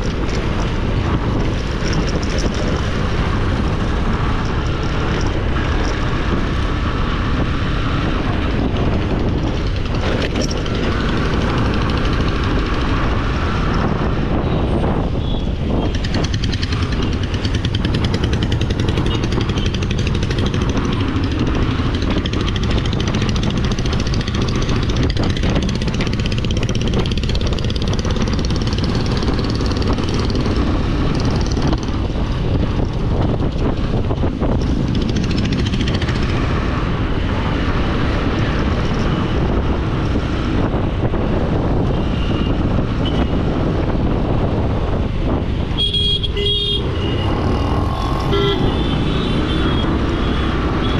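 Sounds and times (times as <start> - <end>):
tyre road noise: 0.0 - 50.9
vehicle engine: 0.0 - 50.9
wind rumbling on microphone: 0.0 - 50.9.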